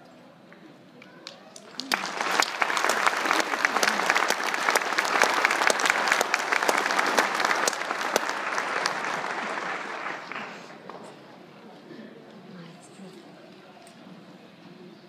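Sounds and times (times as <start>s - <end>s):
audience applauding: 1.2s - 11.0s.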